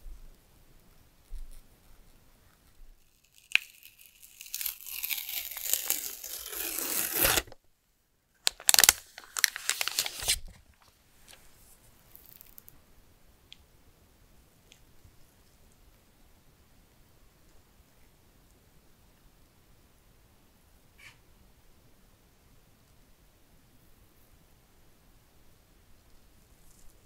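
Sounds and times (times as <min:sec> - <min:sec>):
protective wrap peeling off: 0:03.1 - 0:07.6, 0:08.4 - 0:10.6.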